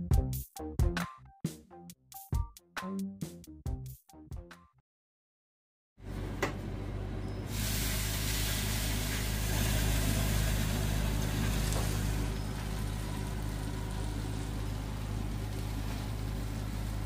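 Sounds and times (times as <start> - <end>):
syrup sizzling on hot pastry: 7.5 - 17.0.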